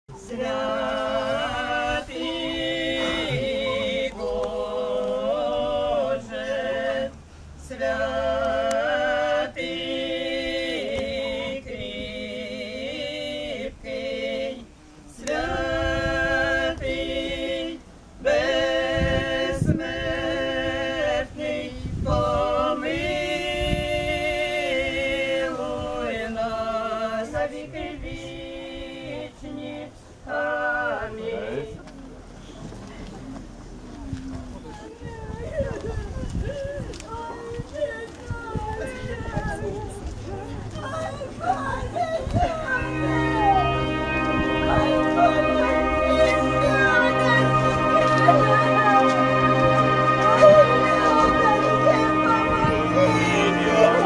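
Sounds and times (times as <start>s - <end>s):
group of voices chanting: 0.2s - 7.1s, 42.6s - 54.0s.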